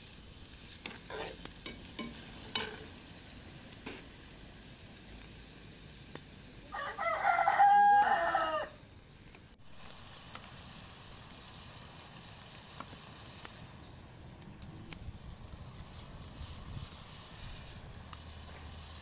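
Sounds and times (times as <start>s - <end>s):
rooster crowing: 6.7s - 8.8s.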